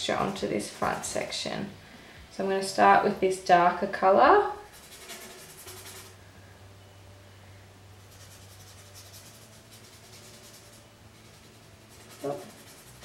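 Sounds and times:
paintbrush rubbing on wood: 4.7 - 6.2, 8.0 - 13.0.

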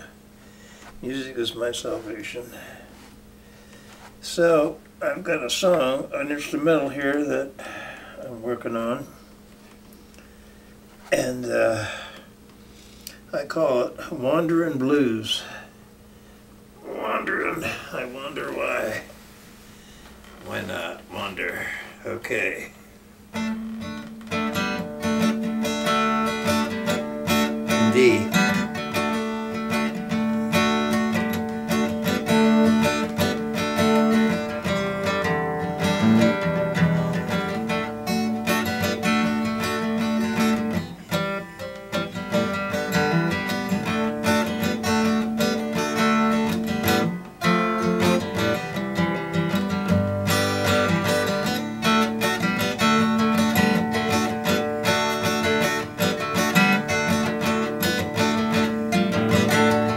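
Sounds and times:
acoustic guitar blues: 16.8 - 59.9.

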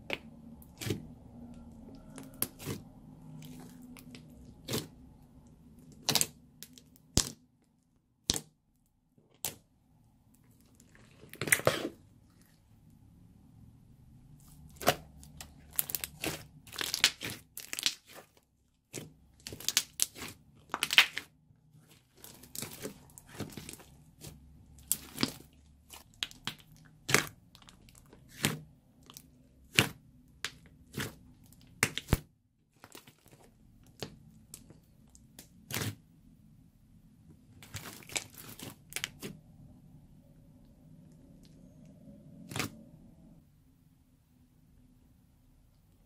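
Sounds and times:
sticky slime pops and crackles: 5.9 - 7.4, 8.2 - 8.6, 14.8 - 18.2, 18.9 - 21.3, 22.2 - 32.3.

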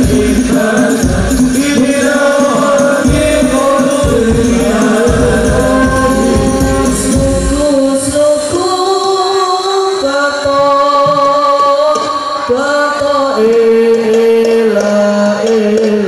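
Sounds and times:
frame drums: 0.0 - 9.0
group singing through pa system: 0.0 - 16.0.

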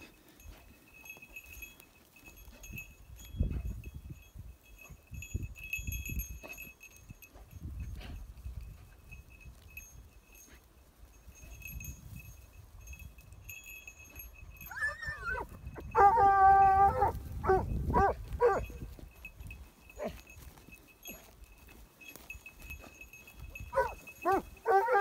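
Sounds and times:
dog yelping: 14.7 - 18.6, 23.7 - 25.0
dog howling: 16.0 - 17.2, 24.6 - 25.0
dog barking: 16.9 - 18.7, 23.7 - 25.0.

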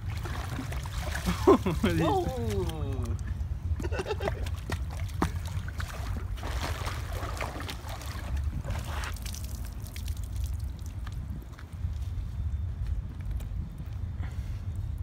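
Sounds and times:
water sloshing: 0.0 - 11.0.

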